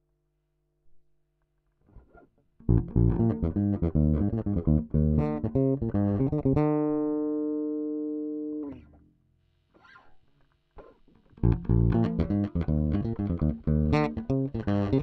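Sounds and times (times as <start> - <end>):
electric bass plucked notes: 2.6 - 8.9, 11.4 - 15.0.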